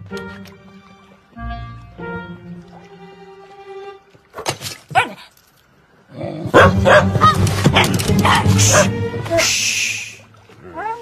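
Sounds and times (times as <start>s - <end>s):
soft sustained music: 0.0s - 4.3s, 6.5s - 10.8s
cartoon dog barking: 6.5s - 8.9s.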